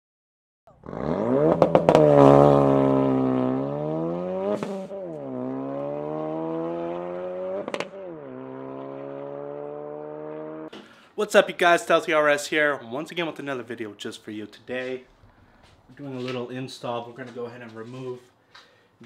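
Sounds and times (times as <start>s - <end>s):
car engine accelerating hard: 0.7s - 10.7s.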